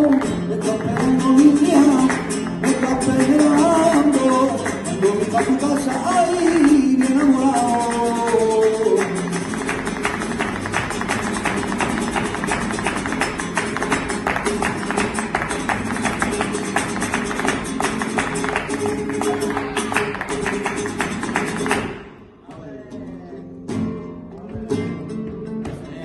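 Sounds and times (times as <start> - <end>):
hand claps: 0.0 - 22.1
acoustic guitar strumming: 0.0 - 26.0
footwork stomping: 6.3 - 22.7.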